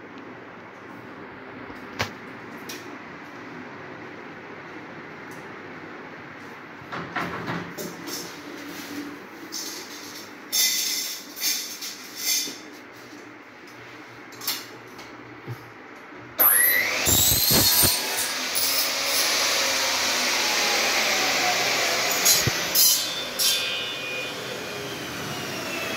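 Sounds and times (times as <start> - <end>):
electric motor whine: 16.4 - 25.9.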